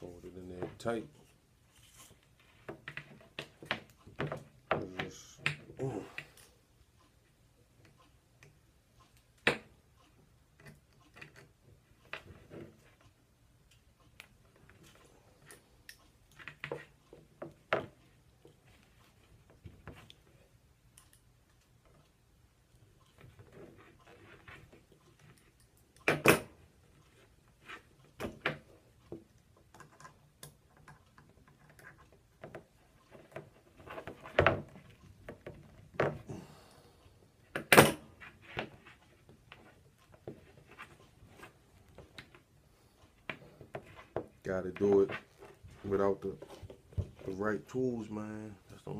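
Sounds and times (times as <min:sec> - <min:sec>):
pliers and cable clicking on wood: 0:07.8 - 0:18.6, 0:28.0 - 0:36.2.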